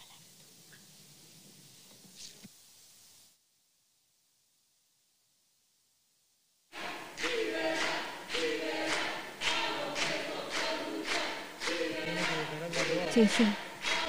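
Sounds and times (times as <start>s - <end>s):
group chanting in unison: 6.7s - 14.0s.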